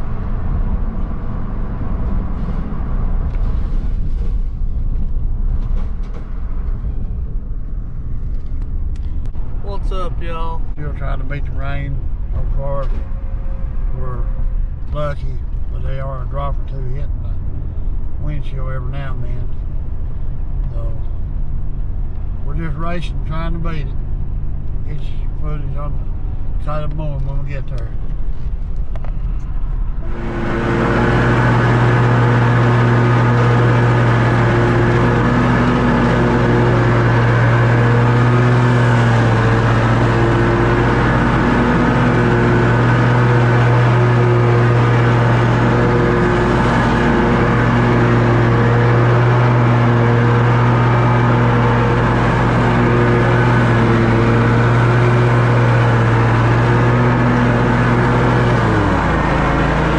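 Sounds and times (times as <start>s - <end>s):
mower engine running: 30.0s - 59.9s.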